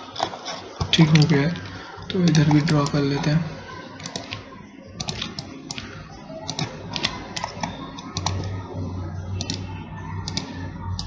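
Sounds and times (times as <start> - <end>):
computer mouse clicking: 2.2 - 3.0, 4.0 - 8.6, 9.4 - 11.0.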